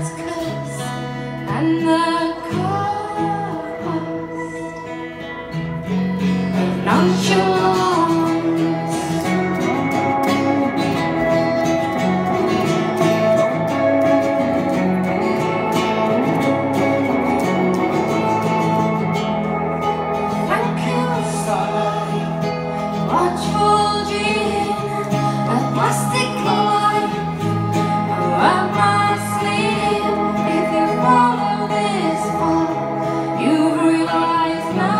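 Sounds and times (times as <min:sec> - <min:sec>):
woman singing: 0:00.0 - 0:11.7, 0:20.2 - 0:34.9
electric guitars ringing chords: 0:00.0 - 0:34.9.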